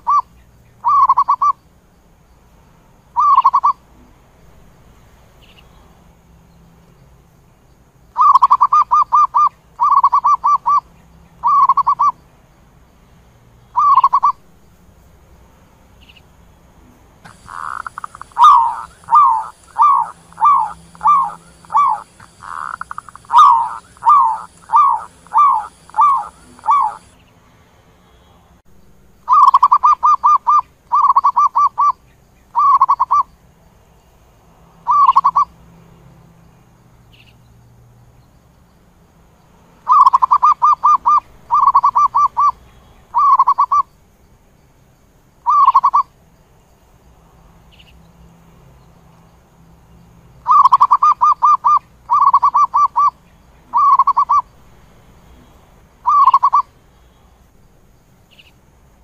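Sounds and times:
dove cooing: 0.0 - 1.6, 3.2 - 3.8, 8.2 - 10.8, 11.4 - 12.1, 13.8 - 14.4, 17.3 - 27.2, 29.3 - 31.9, 32.6 - 33.2, 34.9 - 35.5, 39.9 - 42.6, 43.2 - 43.9, 45.5 - 46.1, 50.5 - 54.5, 56.0 - 56.7.

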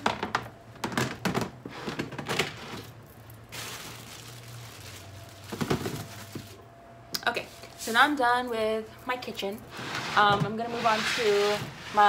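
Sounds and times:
plastic wrap crinkling: 0.8 - 6.7.

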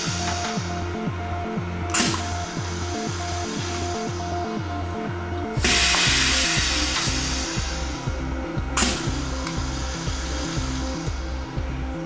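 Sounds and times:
background music with steady beat: 0.0 - 12.0
compressed air hiss: 1.9 - 4.6, 5.6 - 11.5.

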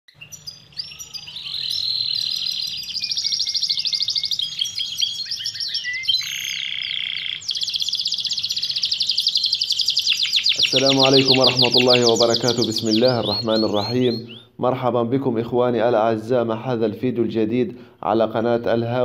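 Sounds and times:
canary singing trills: 0.1 - 14.8.

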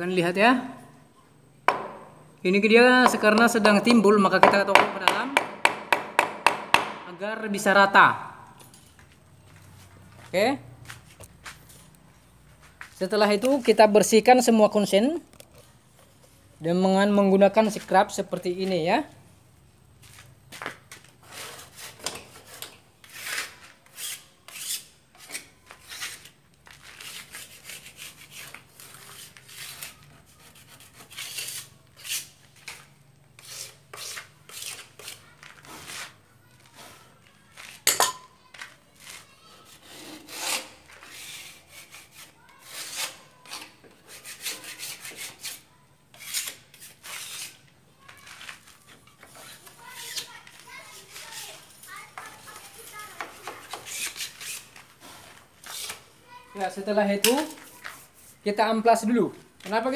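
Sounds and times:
sharp knock: 1.7 - 2.2, 4.4 - 7.1
scraper scraping wooden frame: 21.0 - 37.8, 39.0 - 47.6, 48.2 - 56.1.

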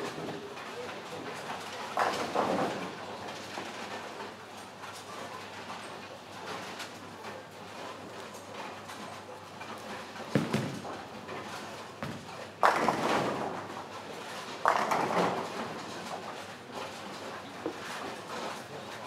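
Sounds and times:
bowling hall background: 9.0 - 18.6.

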